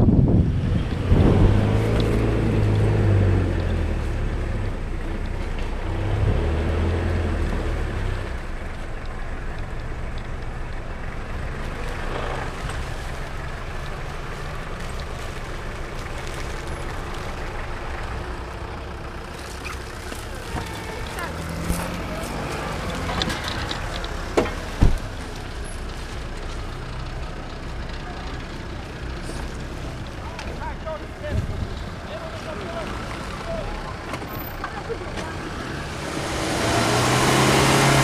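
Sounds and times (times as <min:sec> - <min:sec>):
wind buffeting microphone: 0:00.0 - 0:02.0
vehicle engine driving slowly: 0:00.0 - 0:38.0.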